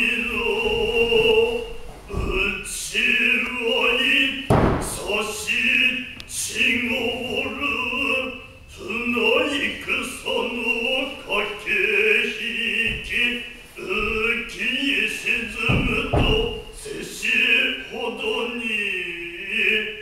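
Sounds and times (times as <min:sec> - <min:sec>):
man chanting in held notes: 0:00.0 - 0:20.0
foot stamp on wooden stage: 0:04.5 - 0:05.0, 0:15.6 - 0:16.8.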